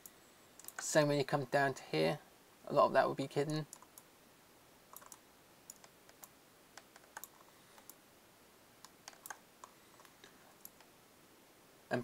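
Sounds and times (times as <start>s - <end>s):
mouse and keyboard clicks: 0.6s - 0.8s, 4.9s - 8.0s, 8.8s - 10.9s.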